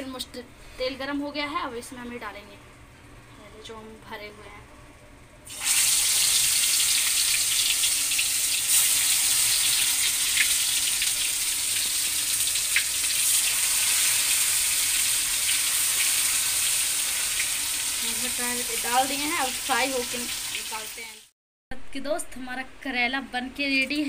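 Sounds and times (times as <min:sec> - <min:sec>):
food sizzling in hot oil: 0:05.4 - 0:21.3.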